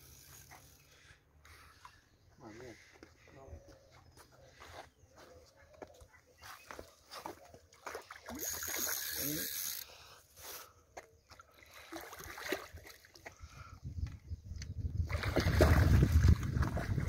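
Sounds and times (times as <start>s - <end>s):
fish thrashing and splashing: 11.6s - 13.2s, 15.1s - 17.0s.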